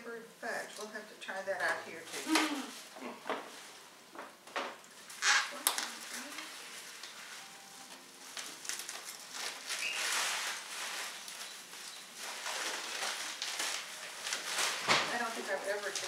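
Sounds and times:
tissue paper rustling: 0:05.8 - 0:16.0.

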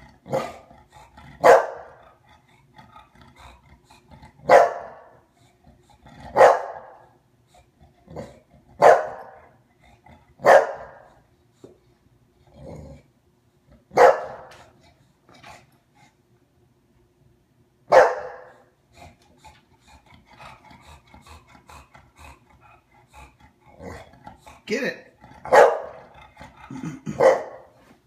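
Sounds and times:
dog barking: 0:00.3 - 0:00.6, 0:01.4 - 0:02.0, 0:04.4 - 0:05.2, 0:06.3 - 0:07.1, 0:08.8 - 0:09.5, 0:10.4 - 0:11.1, 0:13.9 - 0:14.5, 0:17.9 - 0:18.6, 0:25.5 - 0:26.1, 0:27.1 - 0:27.7.

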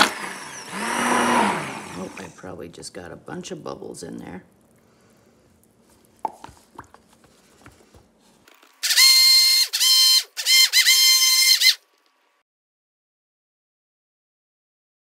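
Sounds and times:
immersion blender motor whine: 0:00.0 - 0:02.4, 0:08.8 - 0:11.8.

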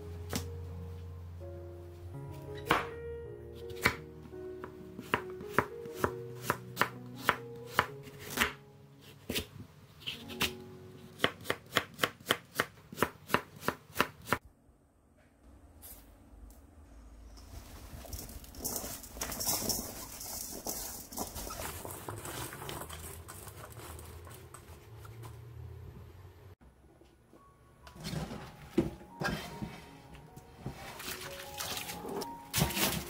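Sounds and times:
soft background music: 0:00.0 - 0:12.3, 0:27.0 - 0:33.0.

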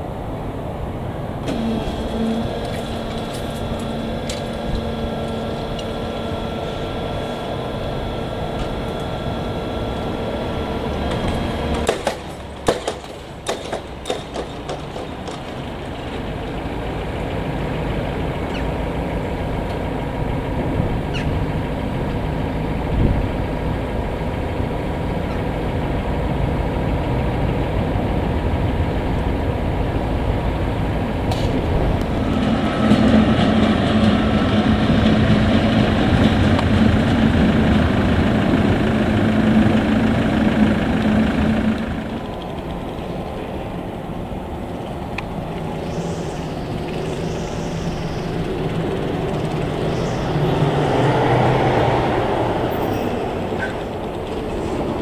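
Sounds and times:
locomotive engine humming: 0:00.0 - 0:55.0
sharp clanks: 0:11.1 - 0:15.6.

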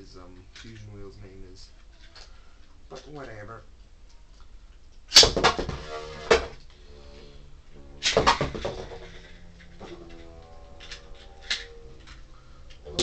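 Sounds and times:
spinning tops whirring hum: 0:06.2 - 0:13.0
spinning tops clattering: 0:07.8 - 0:13.0
sharp clash of spinning tops: 0:08.0 - 0:13.0.

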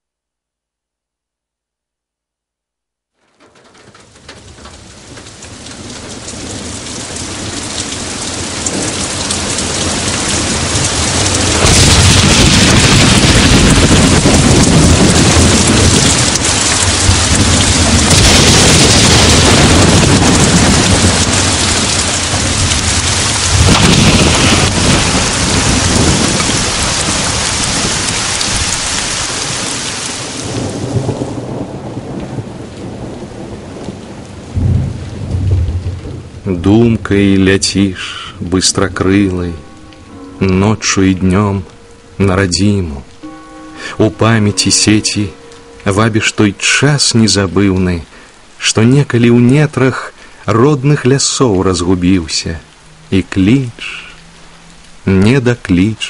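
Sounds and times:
heavy rain: 0:03.2 - 0:56.0
rolling thunder: 0:03.4 - 0:39.9.

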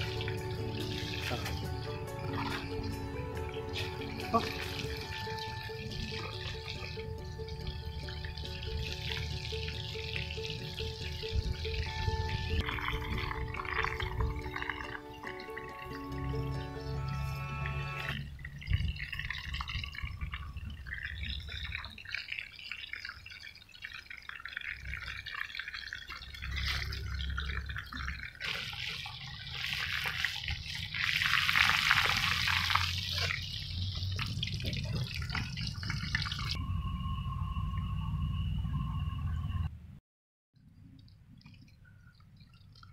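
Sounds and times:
oil sizzling and crackling: 0:00.0 - 0:19.6, 0:20.7 - 0:36.6
low rumble: 0:33.9 - 0:40.0.

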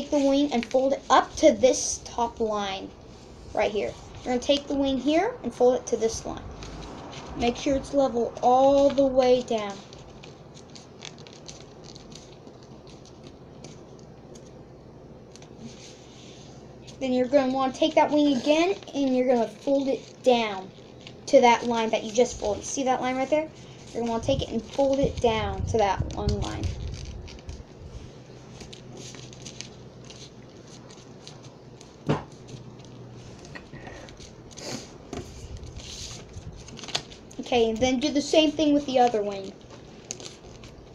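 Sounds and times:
paper rustling and crinkling: 0:00.0 - 0:05.0, 0:06.0 - 0:14.6, 0:15.2 - 0:40.9
soft ticks of paper fold: 0:06.5 - 0:07.4, 0:08.7 - 0:14.6, 0:15.3 - 0:17.0, 0:26.0 - 0:27.8, 0:28.5 - 0:34.6, 0:35.2 - 0:37.9, 0:38.8 - 0:40.9.

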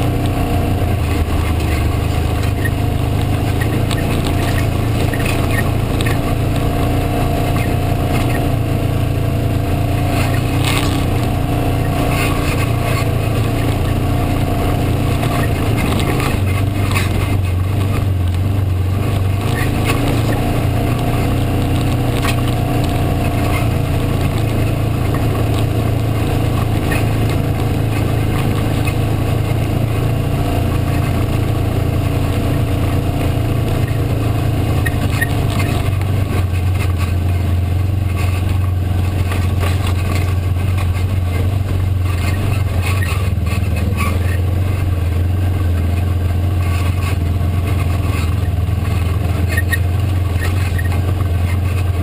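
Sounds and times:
vehicle engine droning: 0:00.0 - 0:52.0
clicks and rattles: 0:38.1 - 0:44.8.

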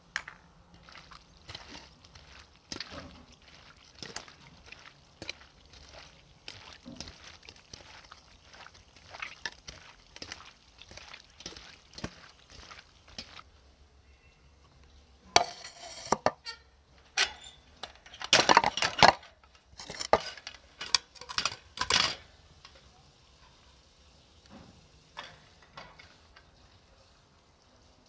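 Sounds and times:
metal kitchenware clinking: 0:15.3 - 0:22.3.

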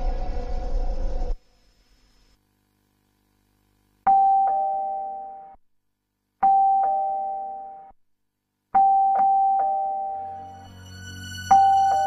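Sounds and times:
two-tone door chime: 0:11.5 - 0:12.0.

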